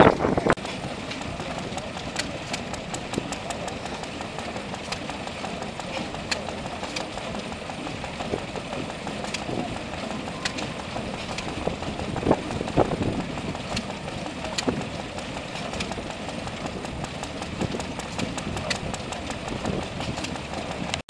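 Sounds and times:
small engine running: 0.0s - 21.0s.

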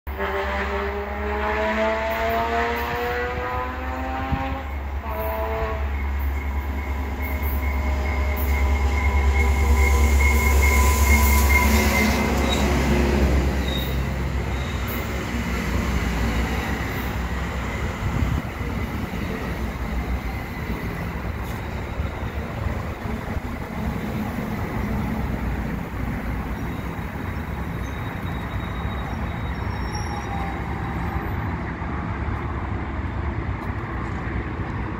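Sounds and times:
train horn blasts: 0.1s - 12.6s
train wheels rumbling on rails: 1.7s - 34.9s
high-pitched wheel squeal: 4.7s - 12.9s, 13.5s - 15.1s, 26.2s - 31.6s.

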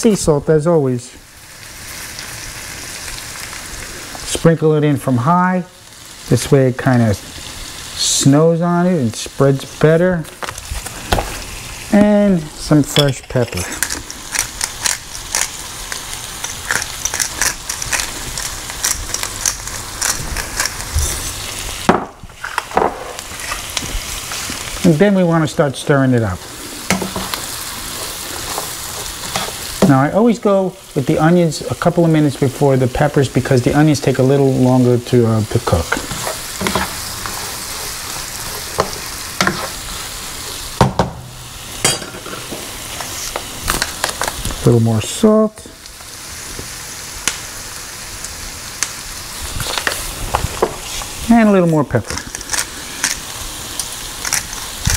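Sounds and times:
onions sizzling in oil: 0.0s - 54.9s
pepper mill grinding: 11.9s - 21.8s, 42.2s - 44.7s, 51.9s - 54.9s
utensil scraping a pan: 20.4s - 21.5s, 35.7s - 40.6s.

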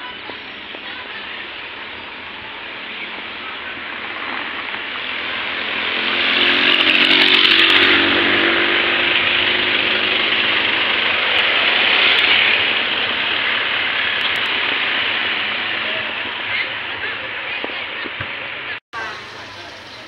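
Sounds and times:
small petrol engine running: 0.0s - 18.0s, 19.0s - 20.0s
loud hiss: 19.0s - 20.0s.

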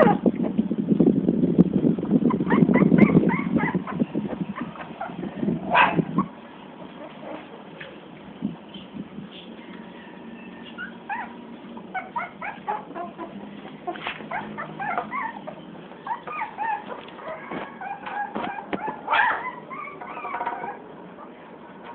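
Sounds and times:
puppies whimpering and yipping: 2.2s - 7.9s, 10.3s - 21.4s.

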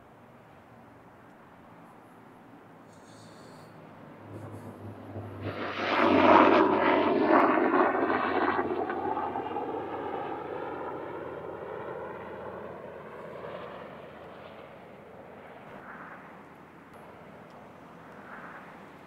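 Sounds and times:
passing engine: 3.0s - 9.4s.

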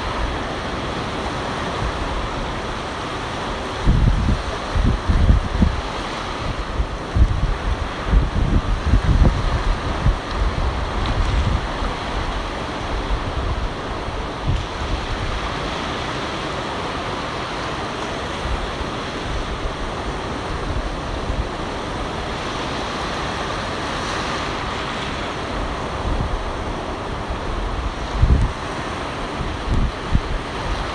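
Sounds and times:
ocean surf breaking: 0.0s - 30.9s
wind buffeting microphone: 3.7s - 16.0s, 25.4s - 30.9s.

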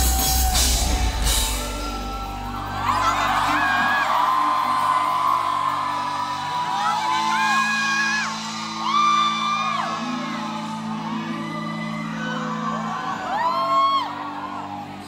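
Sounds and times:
band playing low chords: 0.0s - 12.2s
man singing: 2.8s - 8.0s, 9.4s - 15.0s.

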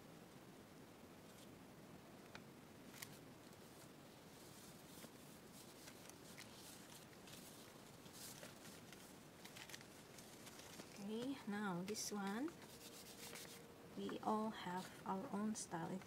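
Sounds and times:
paper page rustling: 2.8s - 13.7s.

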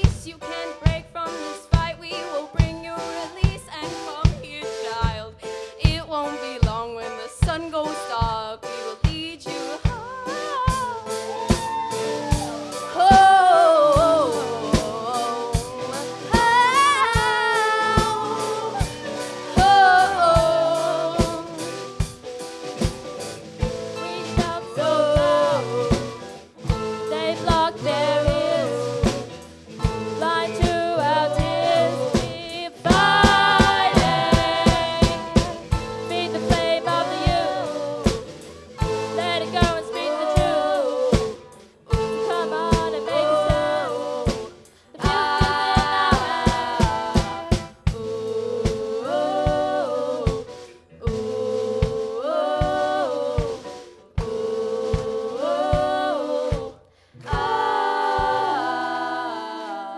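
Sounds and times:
drum kit beat: 0.0s - 59.1s
electric guitars: 15.5s - 31.9s.

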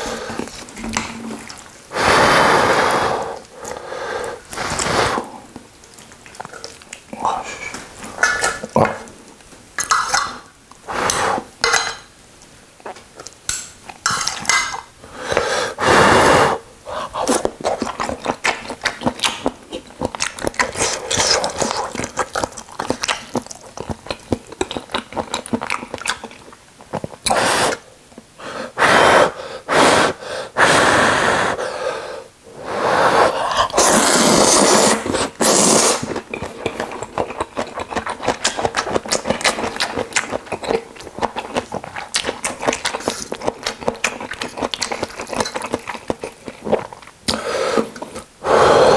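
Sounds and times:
person slurping noodles: 0.0s - 5.5s, 15.2s - 17.5s, 32.6s - 39.8s, 45.1s - 48.9s.

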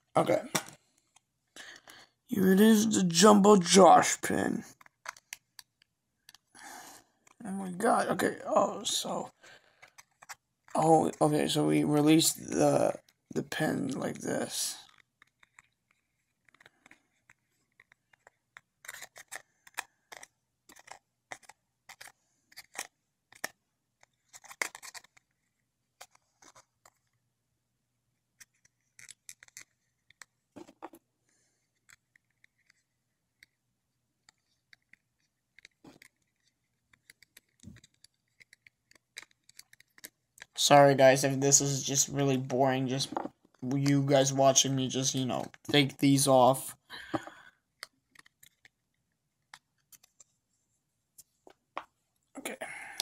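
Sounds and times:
fingers clicking and scraping metal: 34.2s - 40.6s.

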